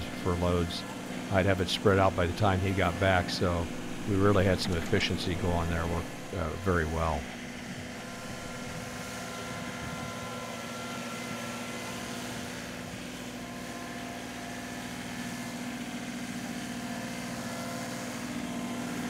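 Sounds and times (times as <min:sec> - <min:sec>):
distant tractor diesel engine: 0:00.0 - 0:11.4.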